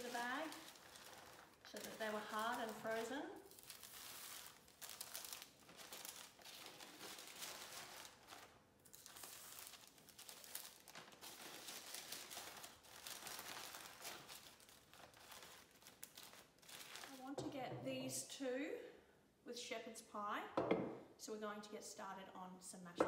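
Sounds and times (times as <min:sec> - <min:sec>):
plastic bag crinkling: 0:00.0 - 0:17.4
baking paper rustling: 0:00.0 - 0:17.5.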